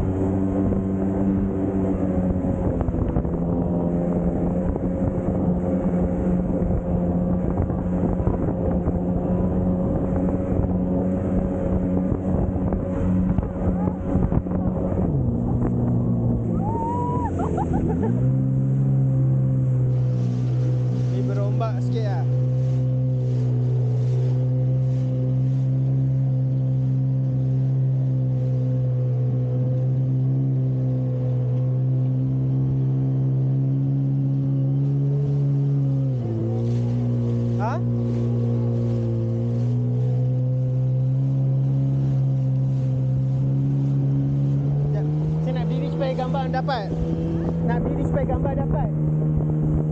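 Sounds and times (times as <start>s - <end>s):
jet ski engine running: 0.0s - 49.9s
water rushing past hull: 0.0s - 49.9s.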